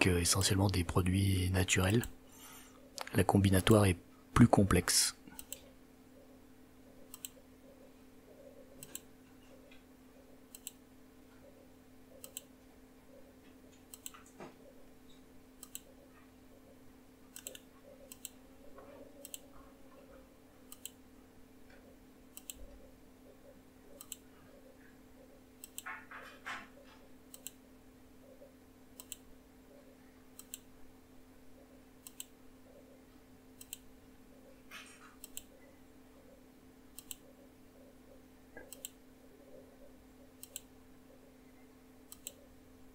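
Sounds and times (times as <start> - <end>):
low steady hum: 0.0 - 42.9
computer mouse clicks: 5.4 - 5.7, 7.0 - 7.5, 8.6 - 9.1, 10.5 - 10.8, 12.1 - 12.5, 13.7 - 14.4, 15.1 - 16.0, 17.3 - 18.4, 19.2 - 19.5, 20.7 - 21.0, 22.3 - 22.9, 23.9 - 24.3, 25.6 - 26.3, 26.9 - 27.6, 28.3 - 29.3, 30.3 - 30.7, 32.0 - 32.4, 33.6 - 33.9, 34.8 - 35.7, 36.9 - 37.4, 38.5 - 39.0, 40.3 - 40.7, 42.1 - 42.5.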